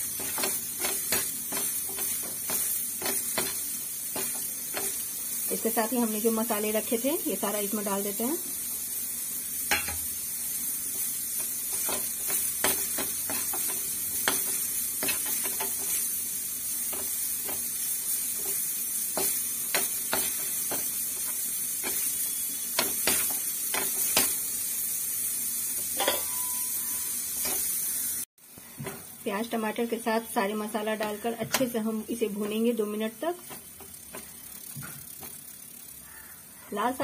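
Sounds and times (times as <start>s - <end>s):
spices sizzling in a frying pan: 0.0s - 37.0s
steel spoon scraping and clinking pan: 26.0s - 26.7s.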